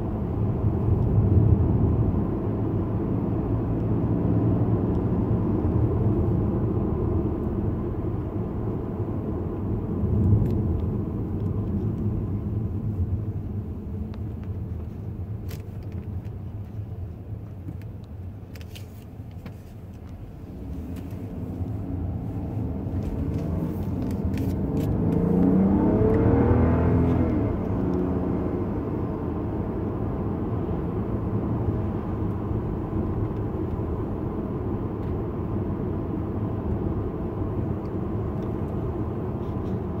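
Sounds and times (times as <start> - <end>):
road noise: 0.0 - 40.0
turbocharged car engine accelerating: 20.4 - 40.0.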